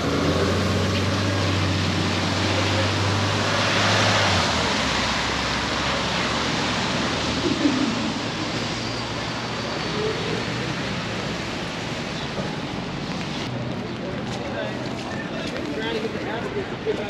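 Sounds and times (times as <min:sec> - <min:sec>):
tyres hissing on wet road: 0:00.0 - 0:13.5.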